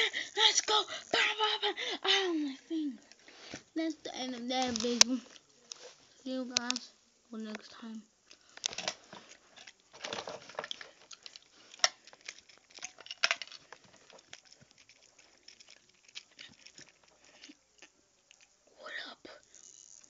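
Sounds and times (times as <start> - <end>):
camera handling rustling: 4.6 - 5.9, 8.6 - 17.6.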